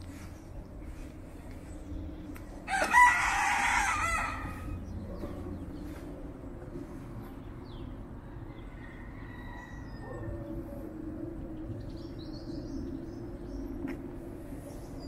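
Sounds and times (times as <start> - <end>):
distant city rumble: 0.0 - 15.0.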